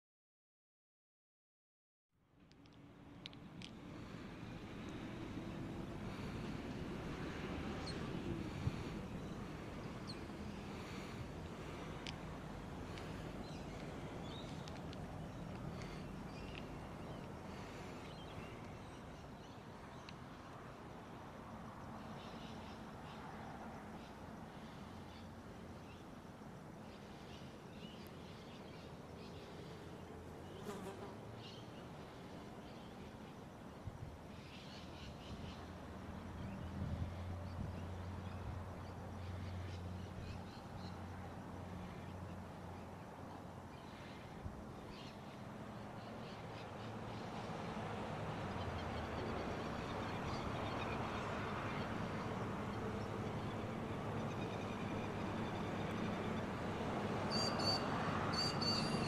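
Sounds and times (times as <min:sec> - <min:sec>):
distant engine hum: 0:02.3 - 0:59.0
small birds chirping: 0:02.5 - 0:20.6
faint bird chirps: 0:57.3 - 0:59.0.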